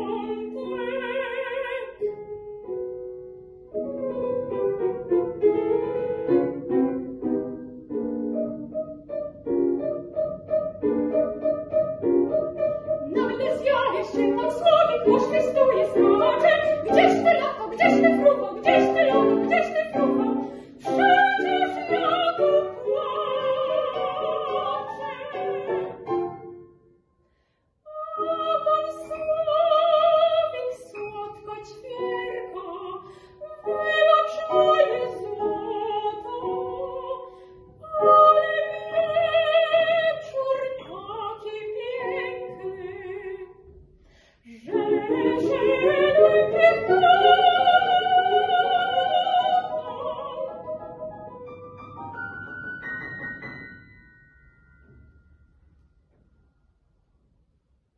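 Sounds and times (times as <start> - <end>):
girl singing operatic style: 0.0 - 2.0, 13.0 - 26.0, 27.9 - 43.6, 44.5 - 50.8
piano: 0.0 - 57.9.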